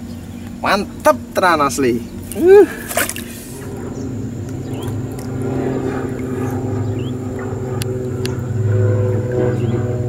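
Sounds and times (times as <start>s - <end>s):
low engine drone: 0.0s - 10.0s.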